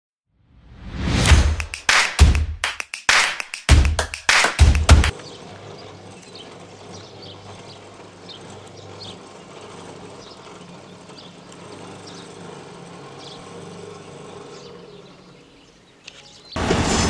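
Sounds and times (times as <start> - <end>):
birds chirping: 3.7 - 16.6
barrier motors humming: 3.7 - 17.0.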